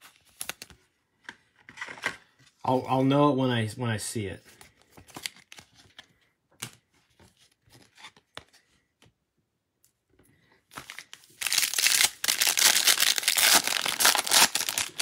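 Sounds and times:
wrapper tearing and crinkling: 10.8s - 15.0s.

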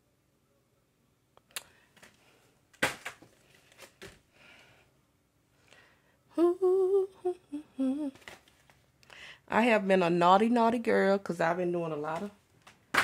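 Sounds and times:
plastic packages crinkling: 2.0s - 4.2s.

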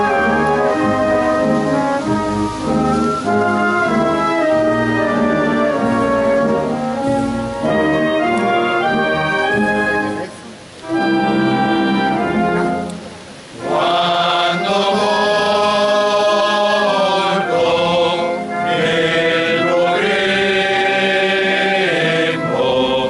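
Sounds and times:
men's choir chanting in harmony: 13.6s - 23.0s.

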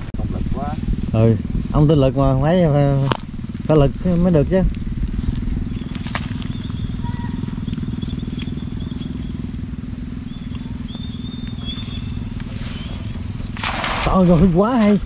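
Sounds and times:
small engine running: 0.0s - 15.0s
faint high chirps: 10.2s - 13.7s.

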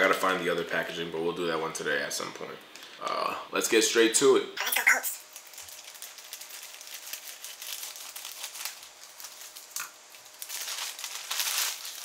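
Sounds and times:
plastic crinkling: 5.2s - 12.0s.

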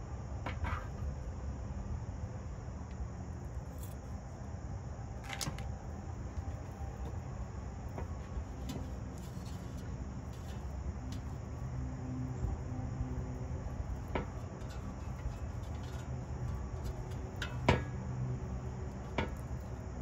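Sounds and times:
low outdoor rumble: 0.0s - 20.0s.

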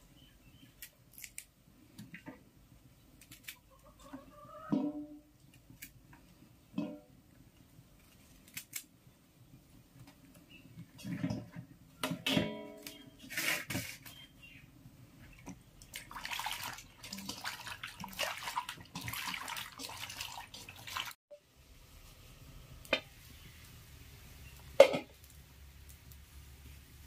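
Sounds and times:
hands swishing vegetables in water: 15.8s - 21.2s.

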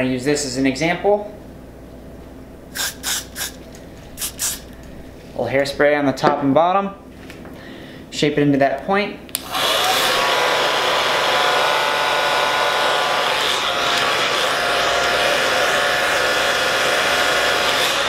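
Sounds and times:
hair dryer running: 9.4s - 18.0s.

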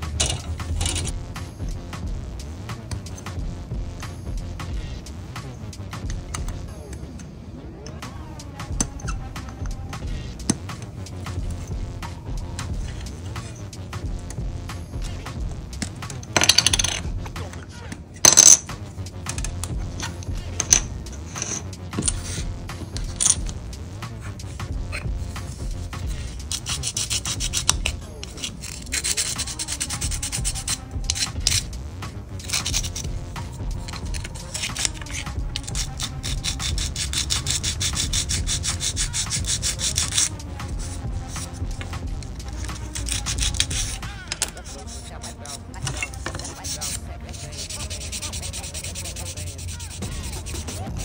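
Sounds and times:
plastic parts clattering: 0.0s - 1.2s, 15.8s - 22.4s, 23.0s - 23.5s
sanding stick rasping on plastic: 24.2s - 31.7s, 32.4s - 51.0s.

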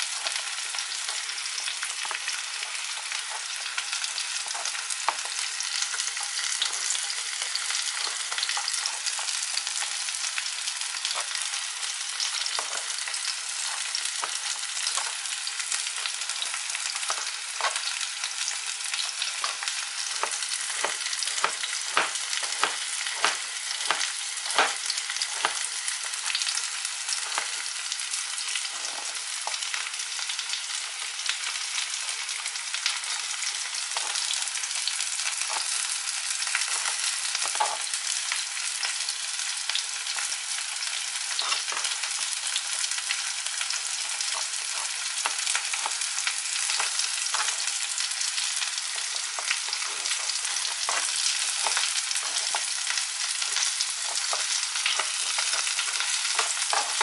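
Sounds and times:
hot oil sizzling: 0.0s - 57.0s
knife chopping on cutting board: 3.3s - 9.8s, 12.2s - 15.2s, 15.9s - 18.0s, 18.9s - 27.7s, 35.3s - 35.8s, 49.0s - 57.0s.

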